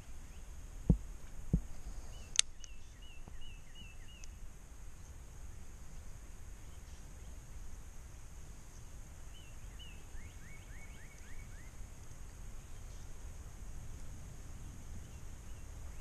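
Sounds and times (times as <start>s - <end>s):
bird calls: 0.0s - 7.7s, 8.6s - 13.3s, 14.6s - 16.0s
wind rumble on microphone: 0.0s - 16.0s
rising bird chirps: 1.7s - 5.7s, 8.7s - 11.8s.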